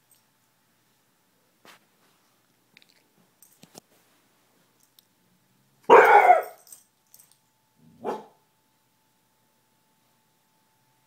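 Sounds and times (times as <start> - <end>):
dog barking: 5.9 - 6.6, 8.0 - 8.4.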